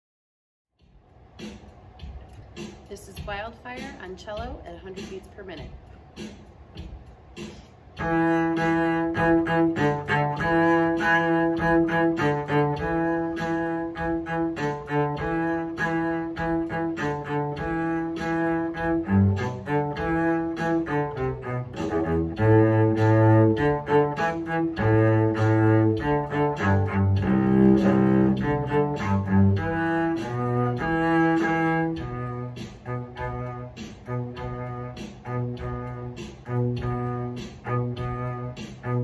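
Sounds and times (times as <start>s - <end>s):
solo cello bowed: 8.0s - 39.0s.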